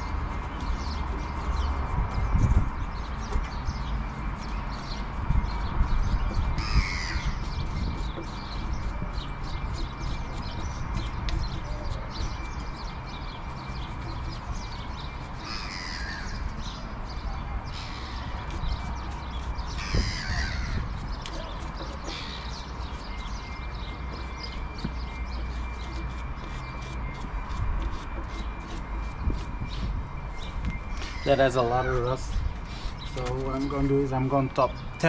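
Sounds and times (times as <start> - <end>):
brush scrubbing metal: 0.0 - 16.8, 17.8 - 30.5, 31.2 - 34.6
bird calling: 2.9 - 35.0.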